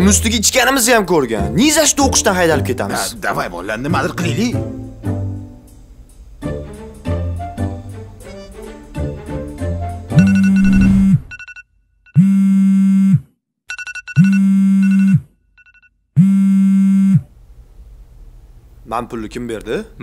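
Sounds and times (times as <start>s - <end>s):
string music: 0.0s - 10.3s
phone ringing buzzes: 10.2s - 11.6s, 12.2s - 17.2s
short high beeps: 10.2s - 11.6s, 13.7s - 15.2s.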